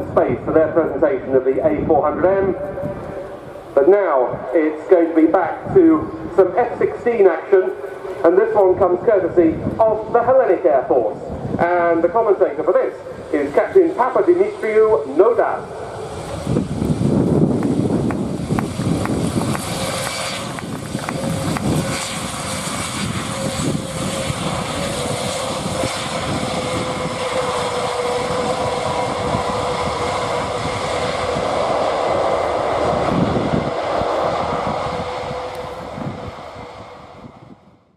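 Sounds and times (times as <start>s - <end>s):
turboprop aircraft droning: 0.0s - 37.9s.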